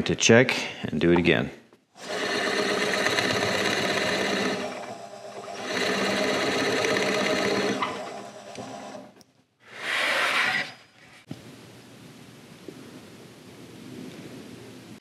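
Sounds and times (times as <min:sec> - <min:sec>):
drill press motor hum: 0:02.0 - 0:09.2.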